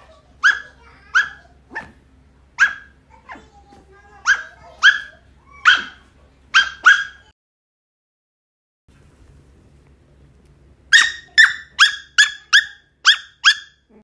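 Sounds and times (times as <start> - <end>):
puppy barking: 0.4 - 2.0, 2.6 - 3.5, 4.2 - 7.3, 10.9 - 13.9.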